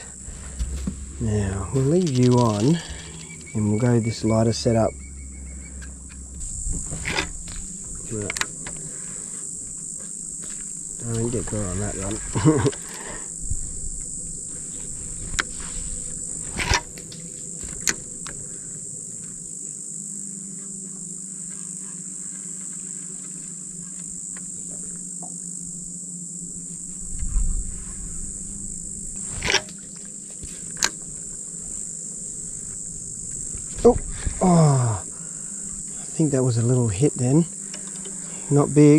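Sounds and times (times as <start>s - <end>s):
insects buzzing: 0.0s - 38.9s.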